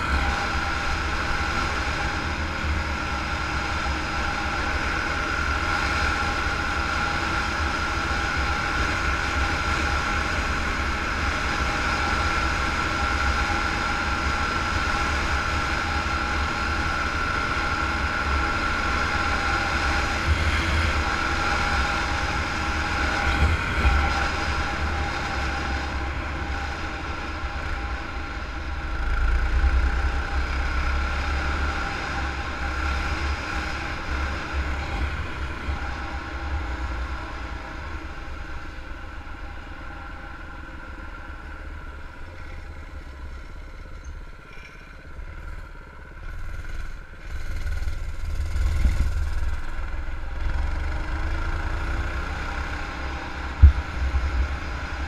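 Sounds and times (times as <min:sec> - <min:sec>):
mini bike engine running: 0:41.8 - 0:55.0.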